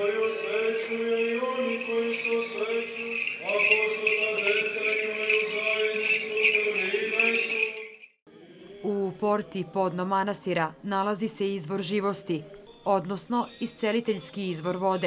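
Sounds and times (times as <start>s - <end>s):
censer bells jingling: 0.0s - 8.2s
liturgical chanting: 0.0s - 15.0s.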